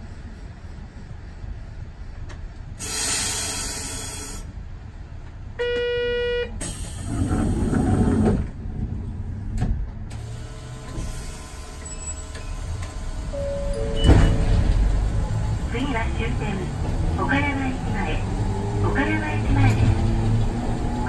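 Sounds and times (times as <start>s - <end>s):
low rumble of vehicles: 0.0s - 21.0s
air hiss: 2.8s - 4.5s.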